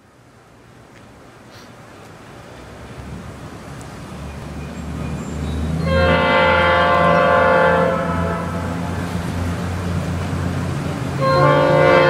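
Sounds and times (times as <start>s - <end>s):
low engine rumble: 0.0s - 12.0s
locomotive air horn: 5.8s - 9.3s, 11.1s - 12.0s.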